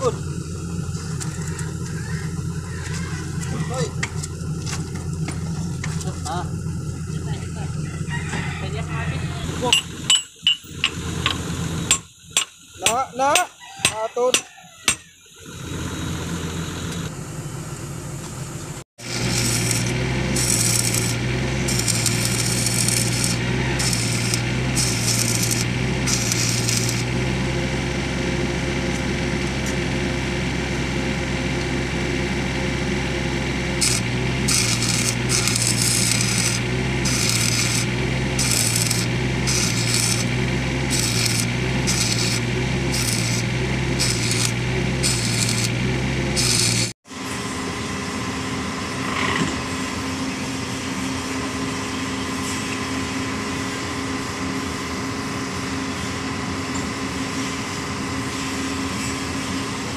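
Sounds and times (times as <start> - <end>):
steady low hum: 0.0 - 12.8, 15.6 - 52.0
arc welding crackling: 19.0 - 27.3, 33.7 - 47.0.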